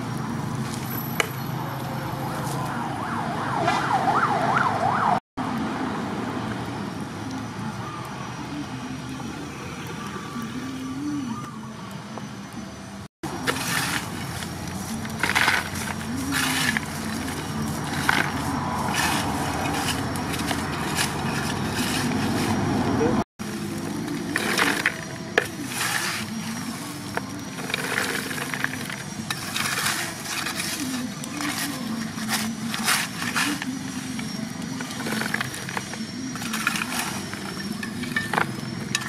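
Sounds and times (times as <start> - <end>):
charcoal pieces clattering: 13.3 - 22.7, 23.4 - 39.0
spade scraping through charcoal: 13.3 - 39.0
people talking: 22.9 - 23.2, 29.6 - 38.4.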